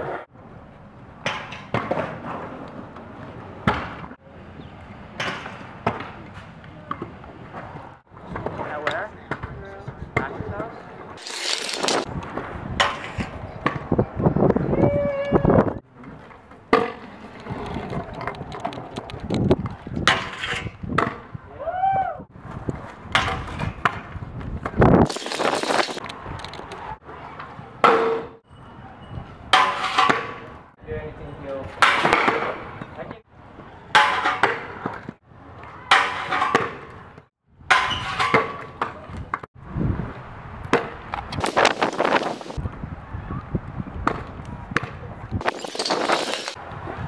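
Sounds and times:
scooter wheels rolling on concrete: 0:05.5 - 0:14.9, 0:15.9 - 0:21.1, 0:22.4 - 0:27.8, 0:40.1 - 0:42.8, 0:44.0 - 0:47.0.

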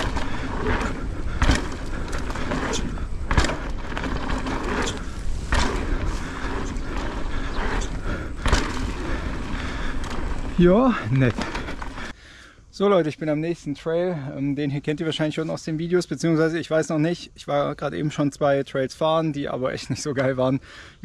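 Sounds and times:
sharp thumps: 0:00.0 - 0:12.1
bike tyres rumbling and rattling: 0:00.0 - 0:12.2.

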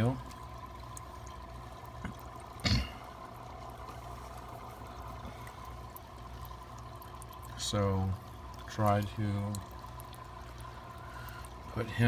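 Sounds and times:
aquarium water trickling: 0:00.0 - 0:12.0
faint steady whine: 0:00.0 - 0:12.0.

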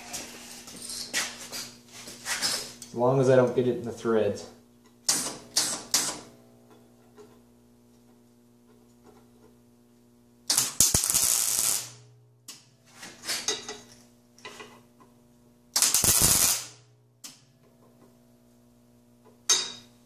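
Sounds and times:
welding arc crackling and spattering: 0:10.5 - 0:12.1, 0:15.7 - 0:16.8.

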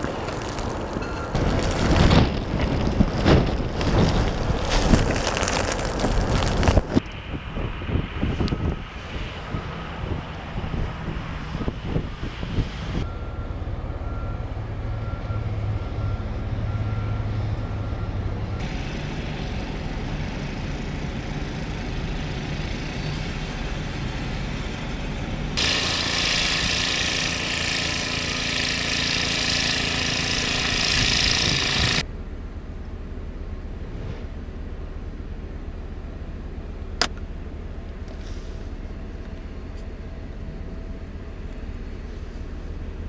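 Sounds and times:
truck driving through snow: 0:00.0 - 0:32.1
loader engine: 0:00.0 - 0:43.0
snowblower running: 0:18.6 - 0:32.1
loud steady rushing hiss: 0:25.6 - 0:32.0.

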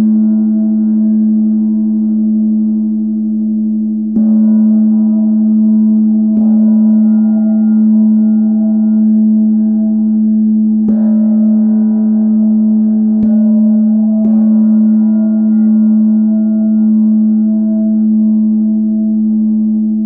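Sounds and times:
gong struck with felt mallet: 0:04.0 - 0:20.0.

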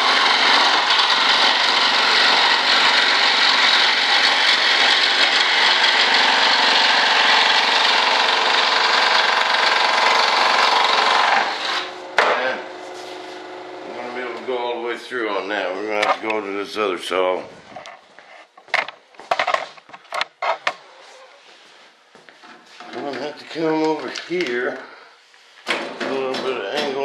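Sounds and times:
scroll saw cutting: 0:00.0 - 0:14.3.

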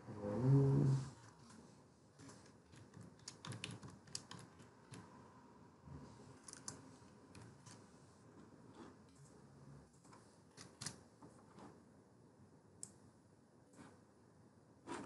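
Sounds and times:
typing on keyboard: 0:02.7 - 0:05.1.

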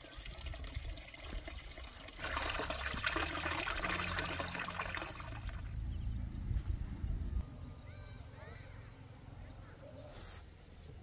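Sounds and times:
water pouring and splattering: 0:00.0 - 0:05.7.

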